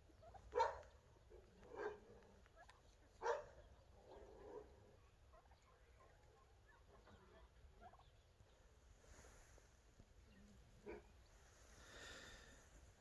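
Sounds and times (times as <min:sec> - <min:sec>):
turkeys gobbling: 0:00.0 - 0:08.8.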